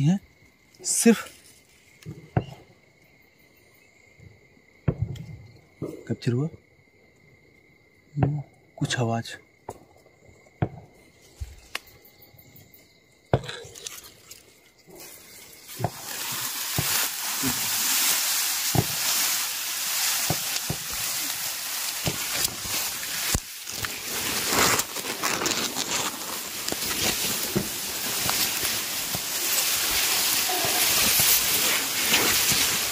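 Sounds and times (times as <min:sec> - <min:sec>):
high insect trill: 0:00.0 - 0:32.9
stems snapping: 0:11.7 - 0:11.9, 0:20.0 - 0:32.8
dry grass rustling: 0:13.7 - 0:32.9.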